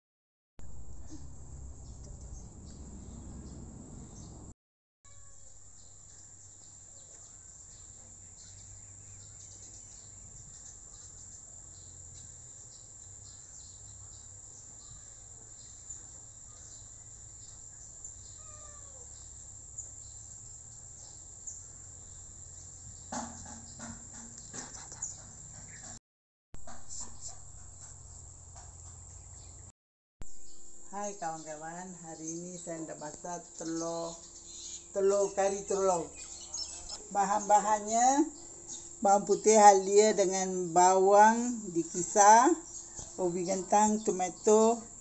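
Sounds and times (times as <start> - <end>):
bird chirps: 5.2 - 20.3, 30.3 - 40.5
insects droning: 5.2 - 25.8, 30.3 - 45.0.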